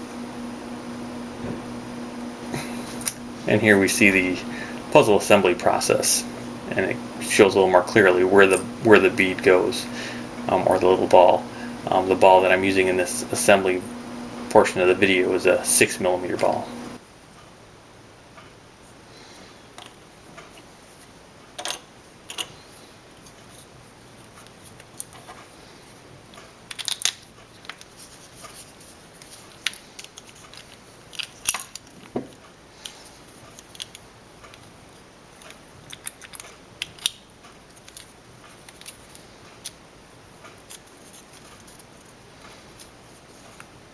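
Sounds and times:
plastic parts clicking and tapping: 26.3s - 27.9s, 35.4s - 39.8s.

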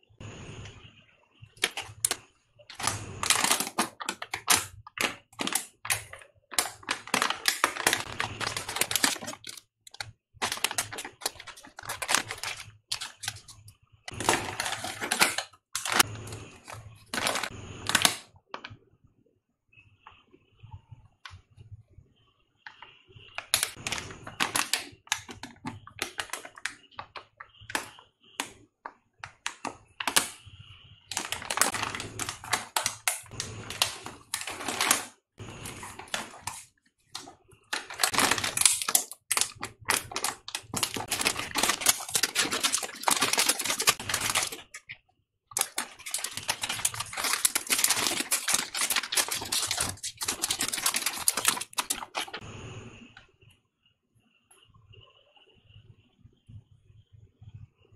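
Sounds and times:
chip packet crinkling: 1.5s - 18.8s, 22.7s - 28.6s, 29.2s - 30.4s, 31.1s - 52.4s.

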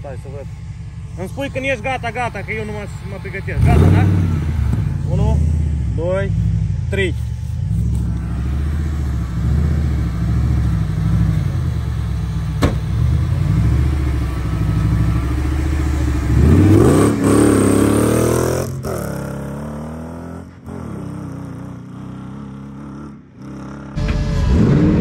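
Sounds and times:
buggy engine revving: 0.0s - 25.0s
sharp knock: 12.6s - 12.9s.

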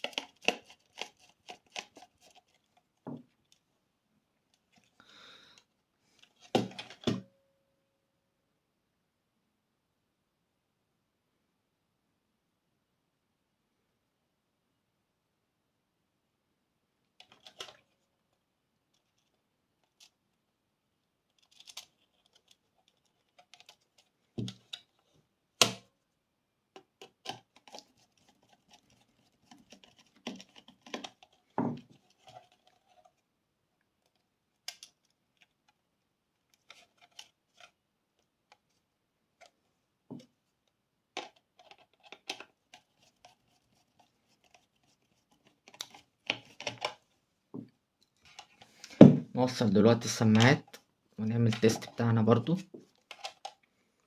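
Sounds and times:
clicks and scratches of plastic parts: 0.0s - 3.7s, 5.6s - 7.2s, 17.2s - 20.3s, 21.2s - 25.8s, 26.8s - 35.8s, 36.4s - 38.8s, 39.4s - 47.2s, 48.0s - 49.0s, 50.0s - 53.7s.

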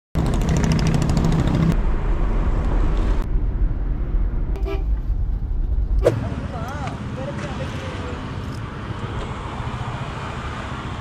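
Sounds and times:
short horn toot: 4.6s - 4.9s
vehicle horn sounding: 4.6s - 5.0s.

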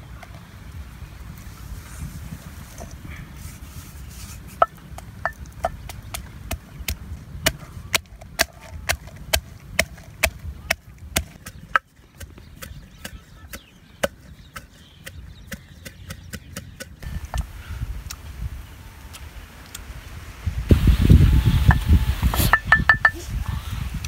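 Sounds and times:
pestle pounding in a mortar: 4.6s - 17.1s, 22.4s - 23.2s.

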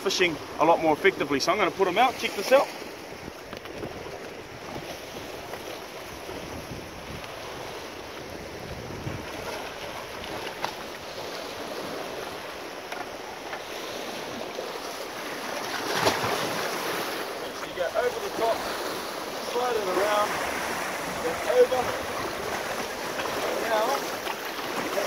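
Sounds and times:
sea surf washing over rocks: 0.0s - 25.0s
wind buffeting microphone: 3.0s - 12.5s.

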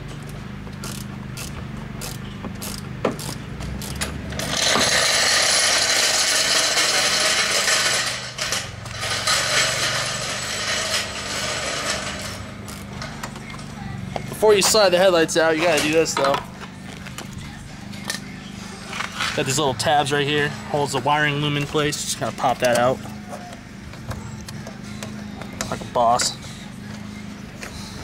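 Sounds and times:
ratchet wrench clicking: 0.8s - 8.2s, 12.6s - 13.4s.

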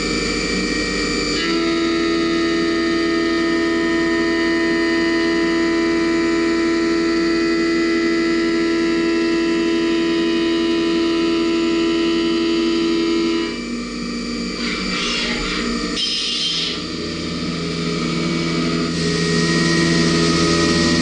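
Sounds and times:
milling machine cutting steel: 14.5s - 17.3s.

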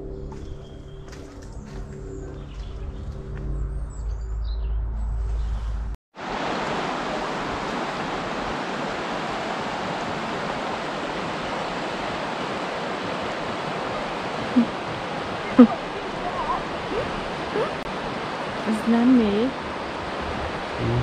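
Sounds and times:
flowing water rushing: 6.2s - 21.0s.

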